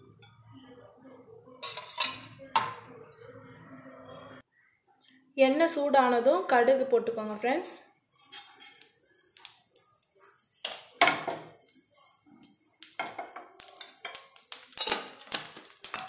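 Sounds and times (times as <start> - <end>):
mustard seeds popping in oil: 8.7 - 10.8, 12.4 - 16.0.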